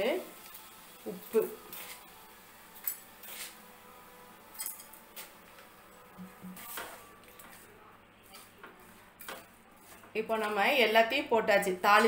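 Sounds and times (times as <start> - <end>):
spoon scraping metal pan: 2.8 - 3.6, 6.2 - 7.6.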